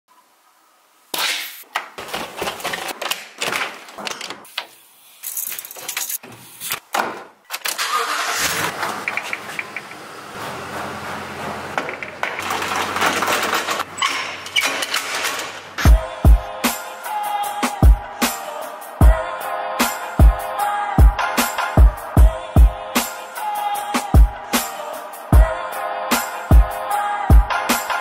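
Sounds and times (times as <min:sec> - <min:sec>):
pickup engine starting and idling: 0:07.7 - 0:13.3.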